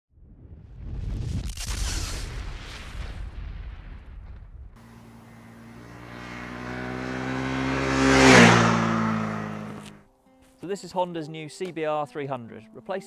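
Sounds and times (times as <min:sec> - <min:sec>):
motorcycle passing by: 0:04.8 - 0:10.0.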